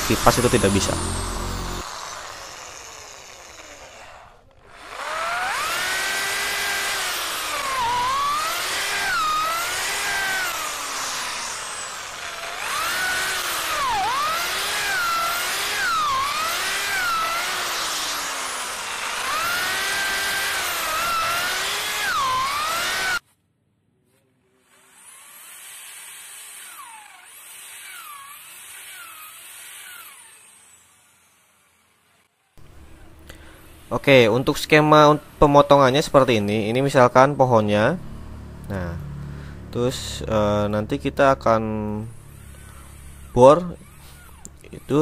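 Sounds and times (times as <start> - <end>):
drill boring into wood: 0.0 - 23.2, 24.6 - 32.6, 41.8 - 45.0.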